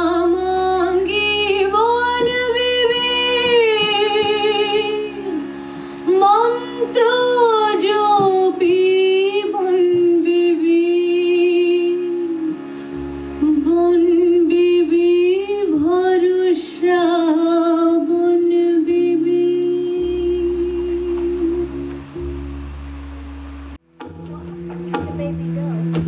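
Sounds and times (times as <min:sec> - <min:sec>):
woman singing: 0:00.0 - 0:12.7, 0:13.4 - 0:22.1
deeper drone note: 0:19.9 - 0:26.0.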